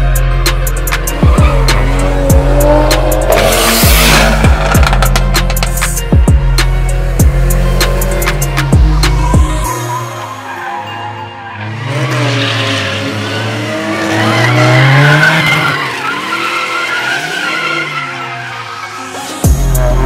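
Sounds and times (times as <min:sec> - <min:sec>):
music with drum beat: 0:00.4 - 0:09.7, 0:19.5 - 0:20.0
car engine revving: 0:00.4 - 0:10.3, 0:11.6 - 0:20.0
tyres squealing: 0:08.6 - 0:19.5.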